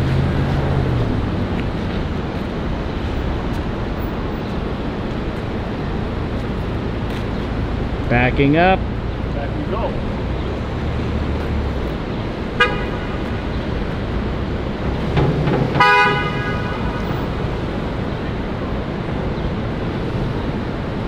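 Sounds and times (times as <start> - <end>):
street traffic road noise: 0.0 - 21.0
car horn honking: 12.6 - 13.5, 15.7 - 17.4.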